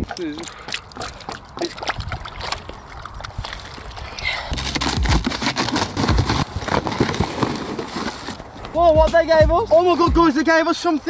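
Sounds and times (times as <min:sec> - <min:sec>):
cardboard boxes rummaged: 0:04.6 - 0:08.6.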